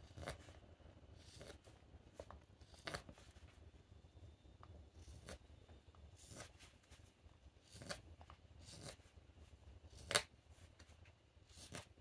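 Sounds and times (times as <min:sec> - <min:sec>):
knife scraping wood: 0:01.2 - 0:01.6, 0:06.2 - 0:06.6, 0:08.6 - 0:09.0.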